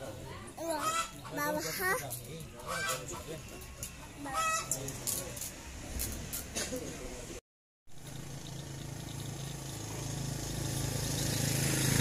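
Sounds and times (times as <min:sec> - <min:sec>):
vehicle engine humming: 0:07.9 - 0:12.0.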